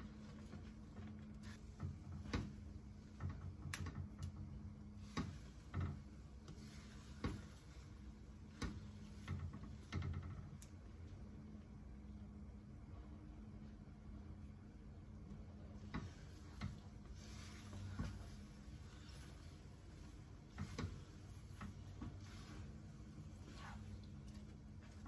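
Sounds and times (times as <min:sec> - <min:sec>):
faint steady hum: 0:00.0 - 0:25.0
spatula scraping and tapping pan: 0:05.0 - 0:10.1, 0:15.9 - 0:25.0.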